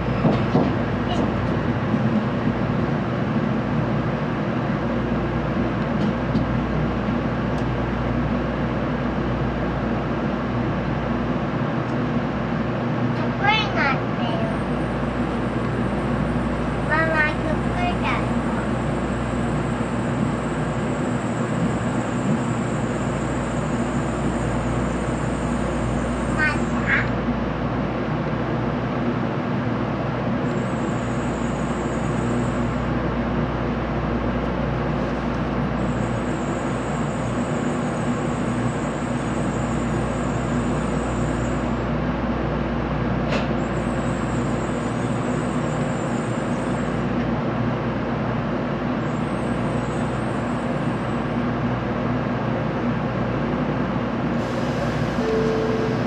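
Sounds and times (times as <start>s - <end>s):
train cabin hum: 0.0s - 56.0s
faint high whine: 55.2s - 56.0s.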